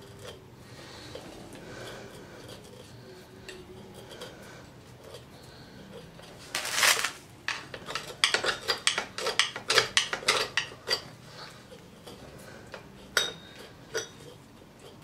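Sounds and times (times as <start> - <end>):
screwdriver scraping metal: 1.8 - 4.4.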